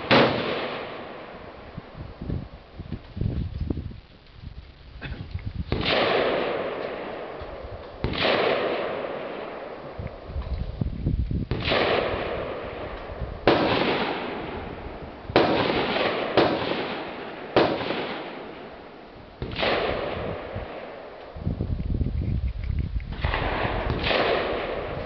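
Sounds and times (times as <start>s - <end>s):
rifle shots echoing: 0.0s - 1.9s, 5.7s - 10.3s, 11.5s - 21.4s, 23.2s - 25.0s.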